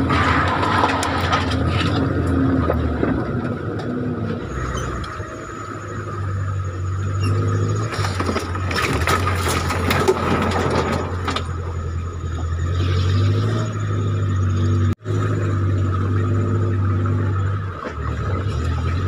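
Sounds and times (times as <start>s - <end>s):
tyres scraping on rocks: 0.0s - 3.2s, 7.3s - 11.6s
off-road vehicle engine running: 0.0s - 19.0s.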